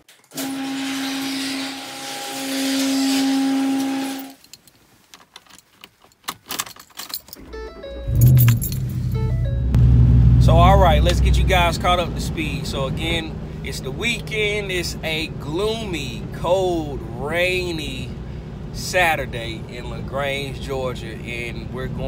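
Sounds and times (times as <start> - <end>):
keys clicking and jingling: 4.4 - 9.3
truck engine cranking and starting: 7.2 - 22.0.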